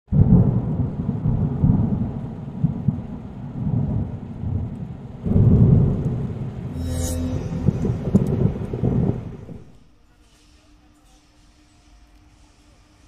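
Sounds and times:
deep rolling rumble: 5.6 - 9.8.

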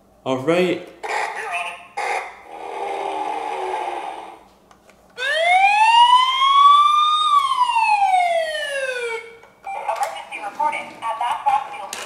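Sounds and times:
electronic toy police siren: 1.0 - 4.3, 5.2 - 9.4.

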